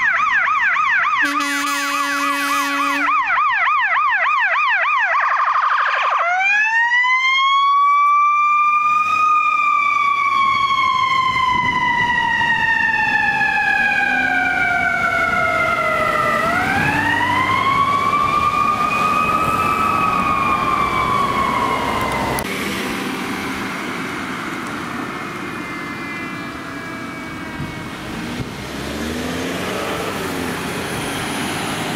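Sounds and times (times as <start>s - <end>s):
ambulance siren: 0.0s - 31.9s
road and traffic noise: 0.0s - 31.9s
faint second siren tone: 7.4s - 29.1s.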